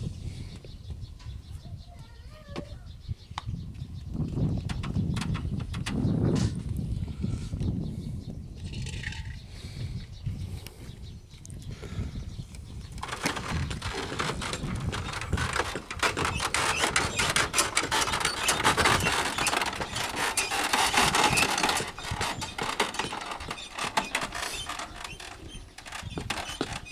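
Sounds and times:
cart water tank rattling: 0:13.0 - 0:26.9.

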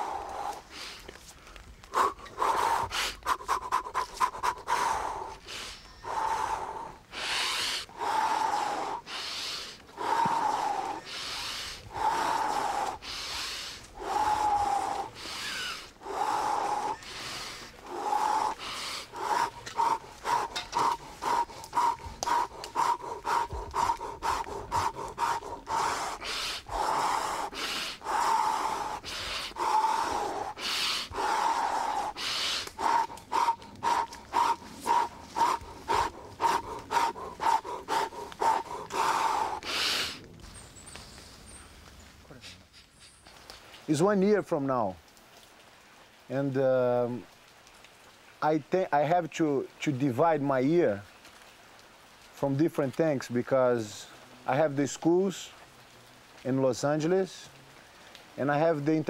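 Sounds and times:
man breathing forcefully: 0:00.0 - 0:01.0, 0:01.9 - 0:40.2.

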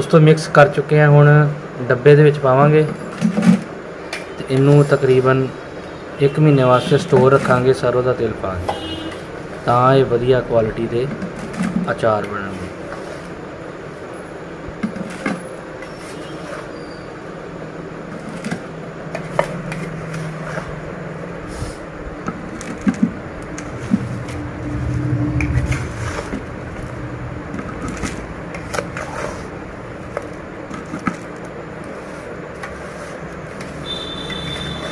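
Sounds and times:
steady low hum: 0:17.2 - 0:33.6
metal ladle scraping metal platter: 0:22.4 - 0:29.6
low rumble: 0:23.2 - 0:28.5.

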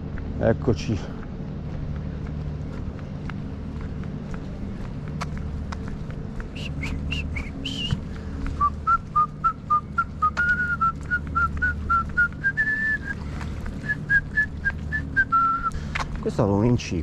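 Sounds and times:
steady low hum: 0:00.0 - 0:17.0
short whistled notes: 0:06.6 - 0:08.0.

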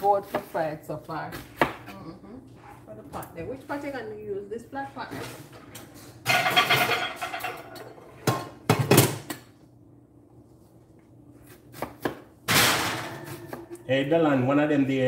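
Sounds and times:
pots and utensils clattering: 0:05.2 - 0:09.3.

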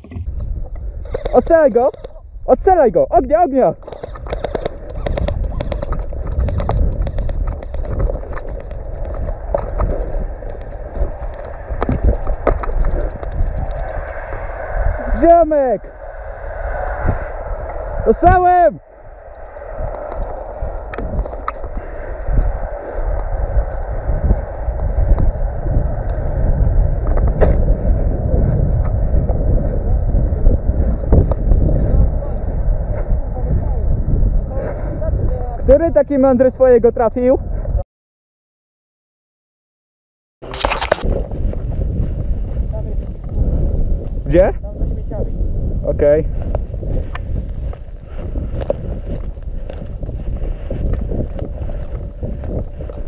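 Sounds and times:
wind rumbling on microphone: 0:00.0 - 0:37.8, 0:40.4 - 0:53.0
rustling through dry grass: 0:03.8 - 0:14.9, 0:19.1 - 0:33.5, 0:40.4 - 0:43.2, 0:46.4 - 0:53.0
sharp crack: 0:03.8 - 0:27.8.

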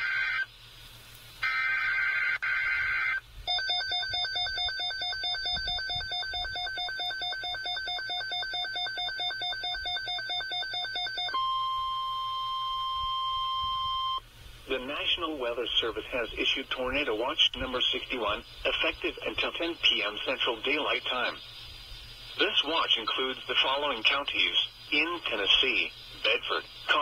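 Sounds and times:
screeching data tones: 0:00.0 - 0:00.6, 0:01.4 - 0:15.0, 0:16.8 - 0:27.0
fast-pulsing electronic alarm beeps: 0:01.4 - 0:14.2
steady attention tone: 0:01.4 - 0:27.0.

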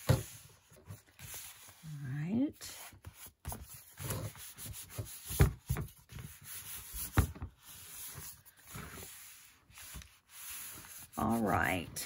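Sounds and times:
hands rubbing and shuffling paper: 0:00.0 - 0:12.0.

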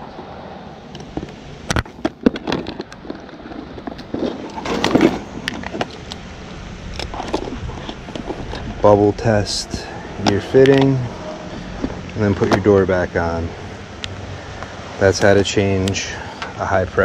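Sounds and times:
tools clattering in bag: 0:02.0 - 0:06.2.

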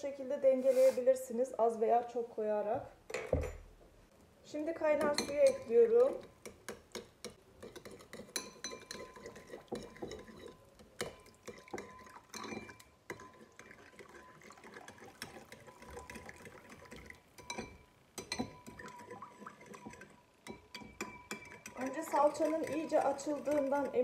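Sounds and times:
spoon clinking on ceramic bowl: 0:05.0 - 0:13.6, 0:17.4 - 0:24.0
water pouring: 0:11.3 - 0:17.2.

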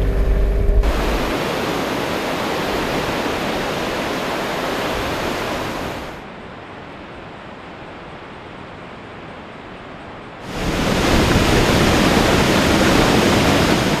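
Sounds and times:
water rushing over spillway: 0:00.0 - 0:06.3, 0:10.4 - 0:14.0.

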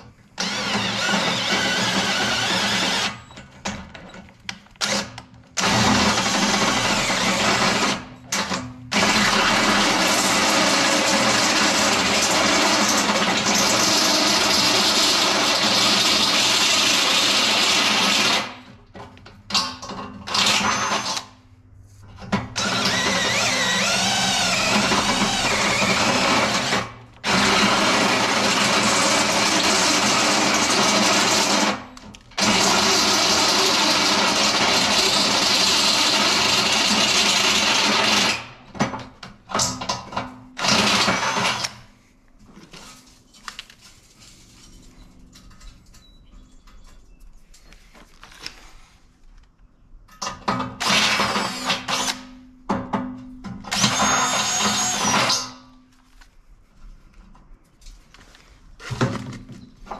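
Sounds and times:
cordless drill boring through steel: 0:00.4 - 0:03.3, 0:04.8 - 0:08.1, 0:08.9 - 0:18.6, 0:20.3 - 0:21.2, 0:22.6 - 0:31.8, 0:32.4 - 0:38.4, 0:40.6 - 0:41.8, 0:50.8 - 0:52.2, 0:53.7 - 0:55.6.

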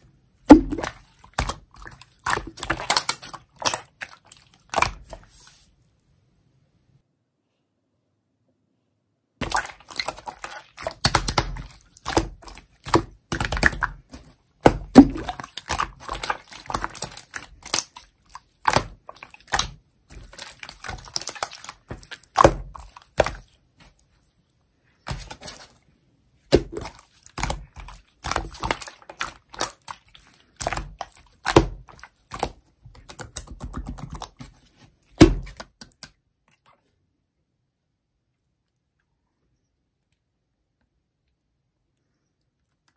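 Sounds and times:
slime clicking and popping: 0:09.4 - 0:14.0.

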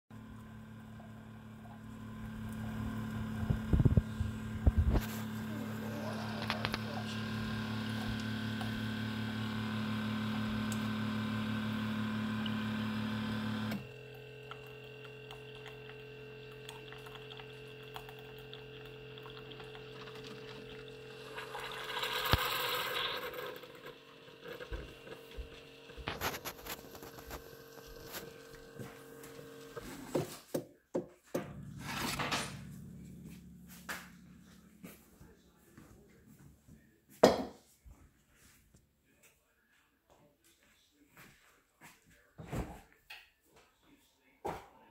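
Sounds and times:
coffee maker pump humming: 0:00.1 - 0:30.4, 0:31.4 - 0:35.6
quieter steady hum: 0:31.4 - 0:36.2.

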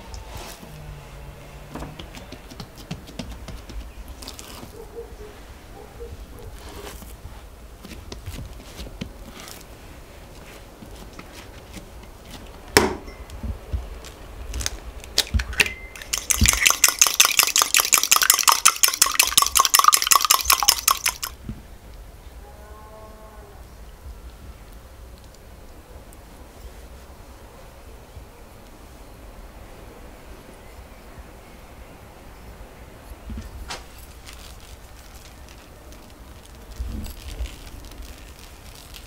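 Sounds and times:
fork beating egg in cup: 0:16.0 - 0:21.3.

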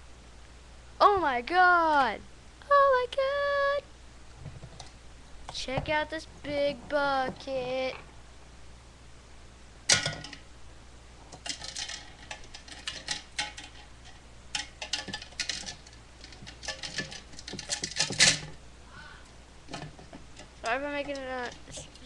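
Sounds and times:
small hard objects clattering: 0:11.3 - 0:18.6.

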